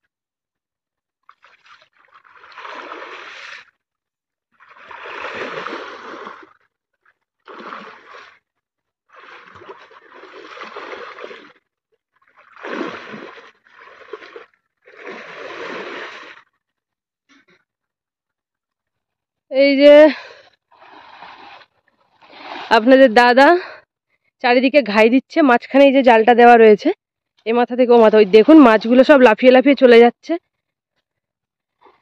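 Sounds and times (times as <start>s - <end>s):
water splashing and churning: 1.2s - 3.8s, 4.5s - 16.6s, 20.2s - 23.6s, 27.6s - 30.0s.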